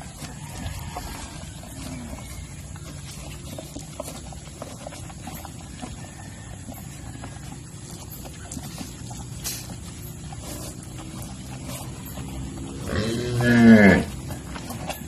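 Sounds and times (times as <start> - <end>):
cow licking and slurping: 0.0 - 15.0.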